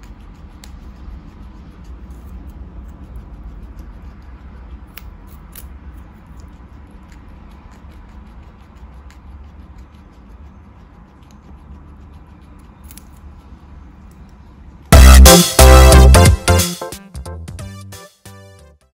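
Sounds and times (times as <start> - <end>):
guinea pig chewing carrot: 0.0 - 14.9
low steady hum: 0.0 - 16.2
loud music: 14.9 - 18.6.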